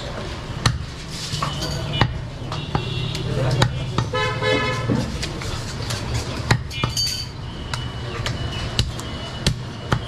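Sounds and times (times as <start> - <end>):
knife chopping meat on wood: 0.6 - 4.2, 6.4 - 7.0.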